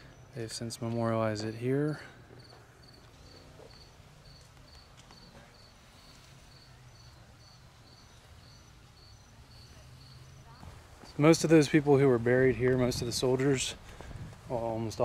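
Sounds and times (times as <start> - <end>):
low outdoor rumble: 0.0 - 15.0
insect chirping: 2.4 - 11.3.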